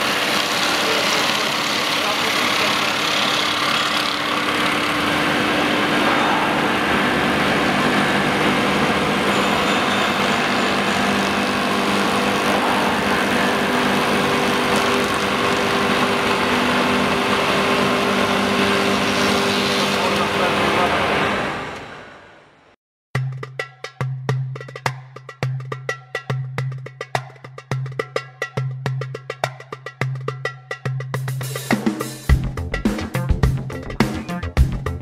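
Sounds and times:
woodworking machine humming: 0:00.0 - 0:22.4.

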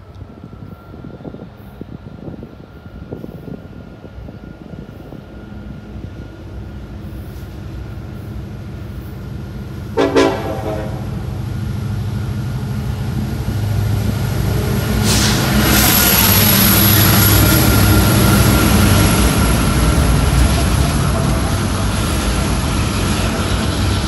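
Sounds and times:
diesel locomotives rumbling: 0:00.0 - 0:24.0
train horn blast: 0:09.9 - 0:11.4.

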